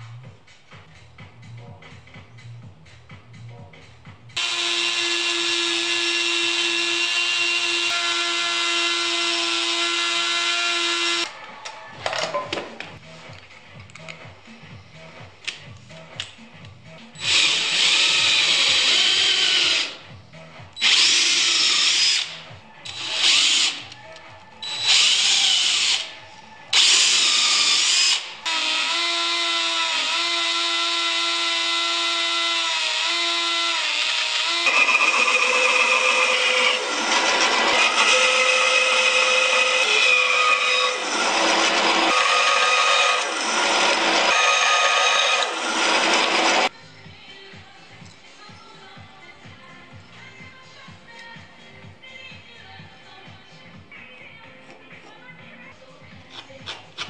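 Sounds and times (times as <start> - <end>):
cordless drill bursts: 4.4 - 11.2, 17.2 - 20.0, 20.8 - 23.8, 24.6 - 26.1
bandsaw cutting wood: 4.4 - 11.3, 26.8 - 46.7
rotary tool whining: 26.7 - 46.7.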